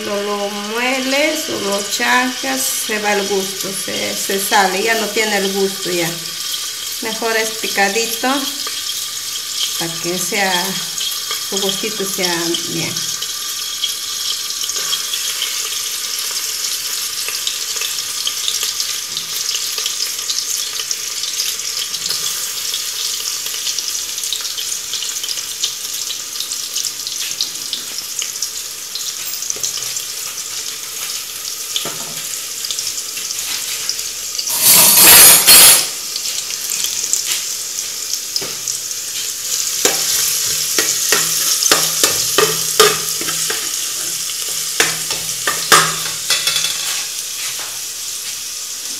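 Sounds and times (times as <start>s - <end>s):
garlic sizzling in hot oil: 0.0s - 48.9s
metal spoon scraping pot: 34.5s - 35.9s, 39.8s - 47.1s.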